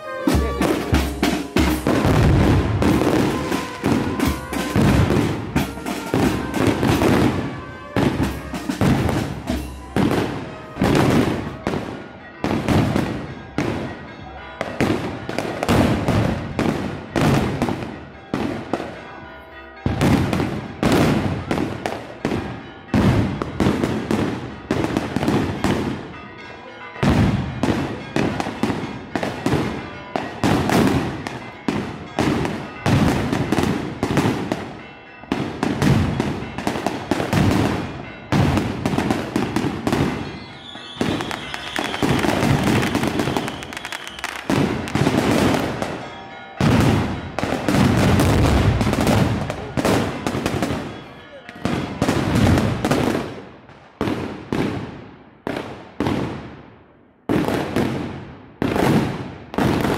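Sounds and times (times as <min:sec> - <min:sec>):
firecrackers bursting: 0:00.0 - 0:13.9, 0:35.4 - 0:56.6, 0:57.3 - 0:59.9
high steady whistle: 0:40.4 - 0:44.5.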